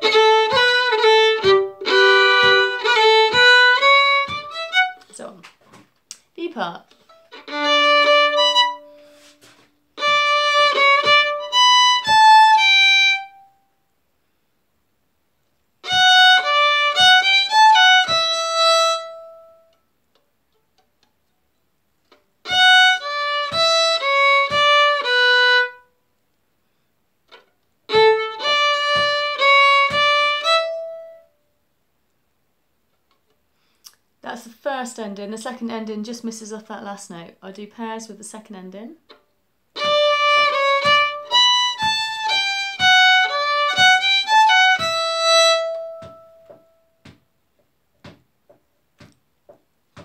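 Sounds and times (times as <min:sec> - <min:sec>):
fiddle playing folk tune: 0:00.0 - 0:05.1, 0:06.9 - 0:13.6, 0:15.8 - 0:19.8, 0:22.1 - 0:25.9, 0:27.3 - 0:31.4, 0:39.1 - 0:47.2.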